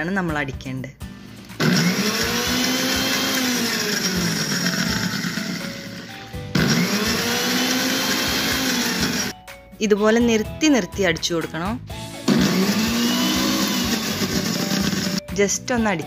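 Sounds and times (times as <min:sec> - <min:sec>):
mixer grinder motor whirring: 0:01.4 - 0:09.4, 0:12.2 - 0:15.2.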